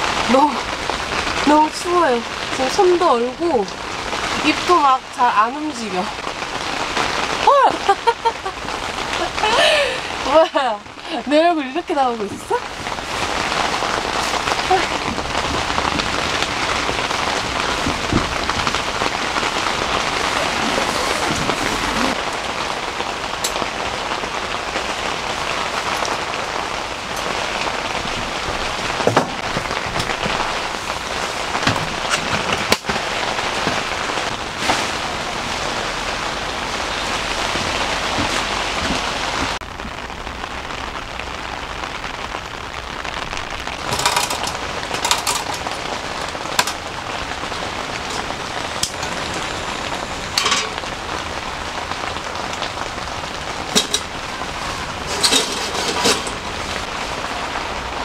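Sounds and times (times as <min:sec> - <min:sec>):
heavy rain on a tent: 0:00.0 - 0:58.0.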